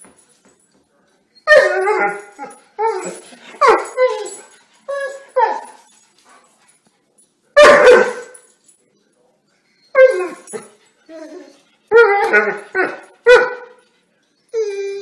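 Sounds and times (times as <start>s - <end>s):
dog whining: 9.8s - 13.4s, 14.5s - 15.0s.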